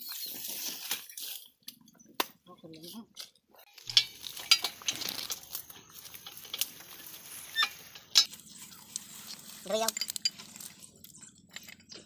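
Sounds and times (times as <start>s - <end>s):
metal parts clinking: 3.7s - 8.5s, 9.2s - 12.0s.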